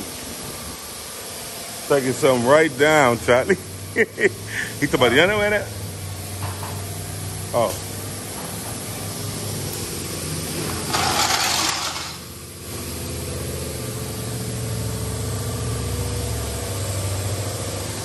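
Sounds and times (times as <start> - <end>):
engine idling hum: 0.0 - 18.0.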